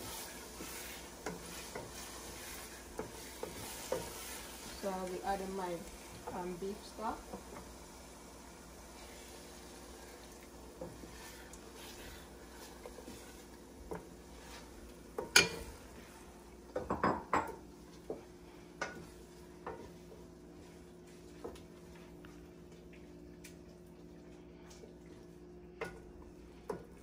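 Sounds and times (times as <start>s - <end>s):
utensil clinking against a pot: 15.2s - 15.7s.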